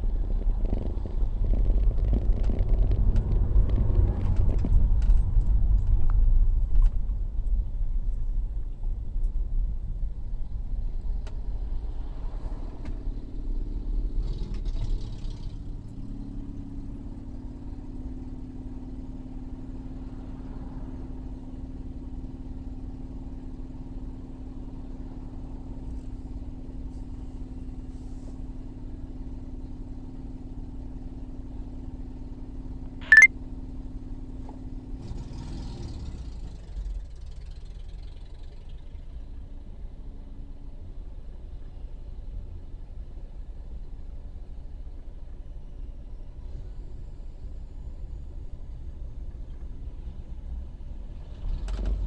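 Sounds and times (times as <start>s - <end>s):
short sharp click: 33.0s - 33.3s
car engine idling: 36.6s - 39.8s.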